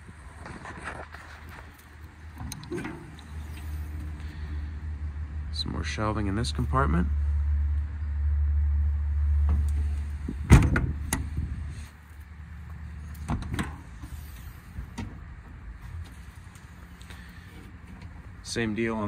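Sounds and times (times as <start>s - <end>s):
low rumble: 2.1s - 18.8s
steel door shutting with bang: 10.4s - 11.3s.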